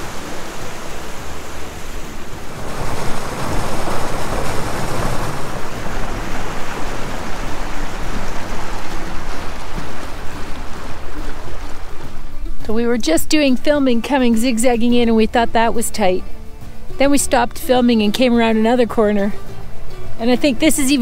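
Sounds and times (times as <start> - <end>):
wind rushing: 0.0 - 12.3
boat motoring through water: 0.0 - 21.0.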